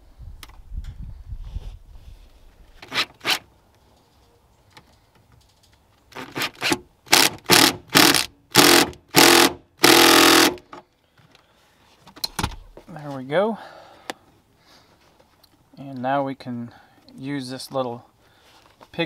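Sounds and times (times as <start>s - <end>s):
cordless drill driving a bolt: 6.2s - 10.7s.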